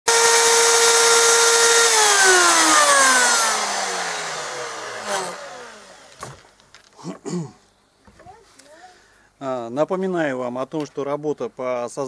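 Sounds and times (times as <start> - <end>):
wood router spinning down: 0.1 - 6.5.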